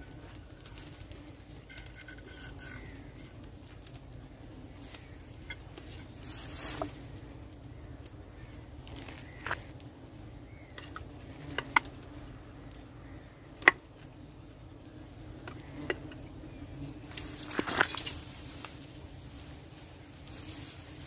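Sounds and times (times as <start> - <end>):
bees humming: 0.0 - 21.0
sharp clicks and knocks: 10.7 - 12.1.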